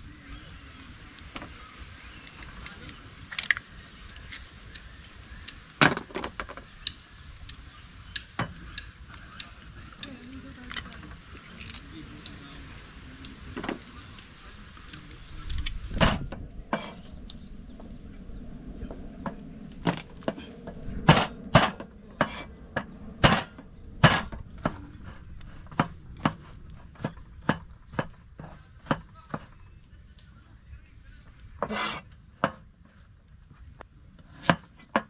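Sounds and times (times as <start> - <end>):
heavy thump: 19.2 - 24.9.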